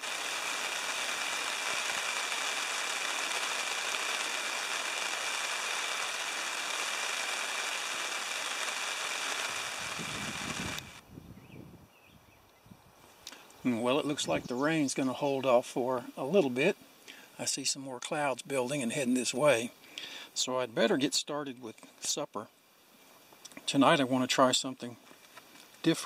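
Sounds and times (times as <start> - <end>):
rain on a nylon tarp: 0.0 - 11.0.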